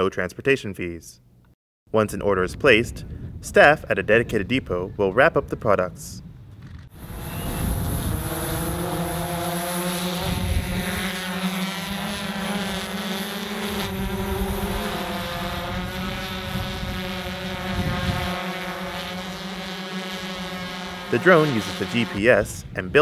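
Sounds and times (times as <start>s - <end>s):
drone propellers buzzing: 6.9s - 22.6s.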